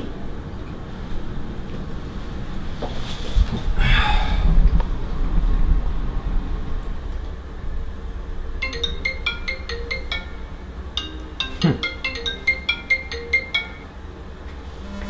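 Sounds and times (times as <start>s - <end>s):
marimba-like ringtone melody: 8.6s - 14.1s.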